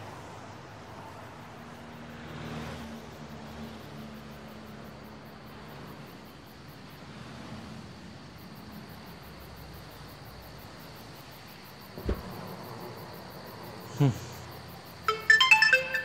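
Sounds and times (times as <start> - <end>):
crickets chirping: 0.0 - 16.0
loud thump with falling pitch: 12.0 - 12.4.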